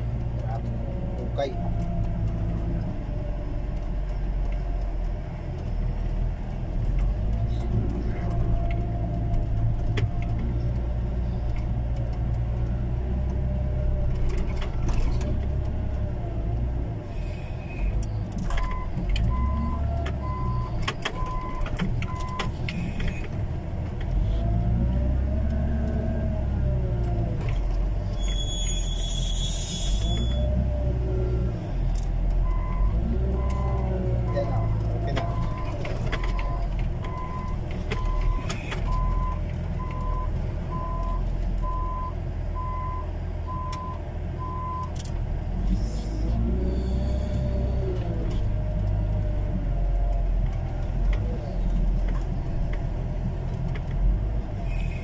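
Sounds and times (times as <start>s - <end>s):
diesel engine revving under load: 13.1s - 55.0s.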